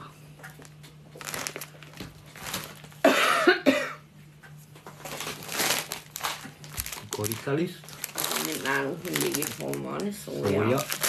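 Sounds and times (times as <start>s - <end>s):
steady low hum: 0.0s - 11.0s
person coughing: 3.0s - 4.1s.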